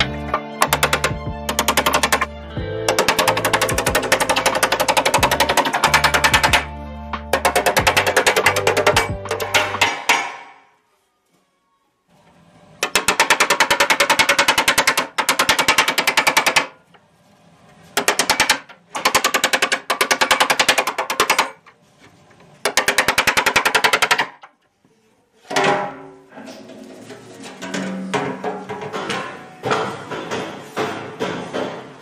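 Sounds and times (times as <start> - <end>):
hammering on aluminium sheet: 7.3 - 10.6.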